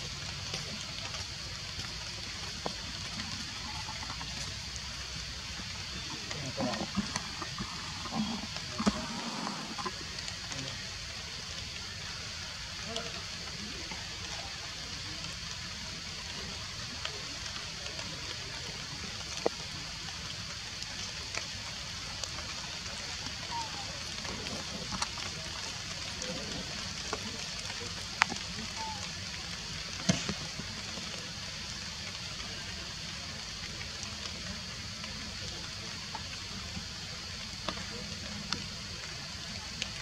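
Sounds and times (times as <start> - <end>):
forest ambience hiss: 0.0 - 40.0.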